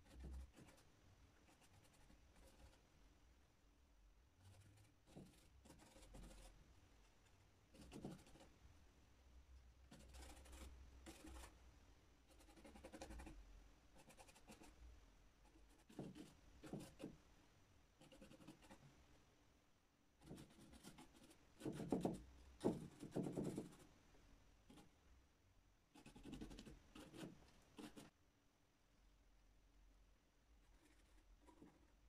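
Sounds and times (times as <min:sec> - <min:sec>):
paintbrush strokes: 0:00.0 - 0:02.9, 0:04.4 - 0:08.6, 0:09.9 - 0:11.6.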